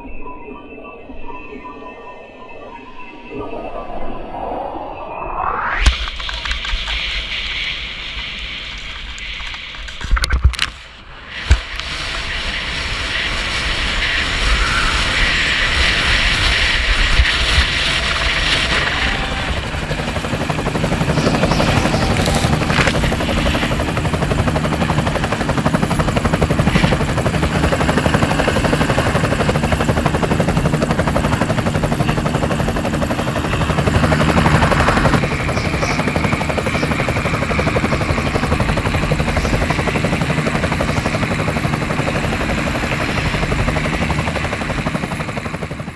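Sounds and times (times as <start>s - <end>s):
wind and ski noise: 0.0s - 45.9s
helicopter engine and rotor: 11.4s - 45.9s.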